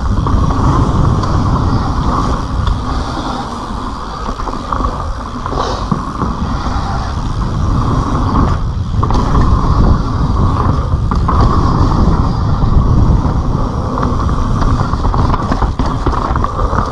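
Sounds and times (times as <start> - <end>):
bike rattling over bumps: 0.0 - 16.9
bike tyres rolling over dirt: 0.0 - 16.9
wind rumble on microphone: 0.0 - 16.9.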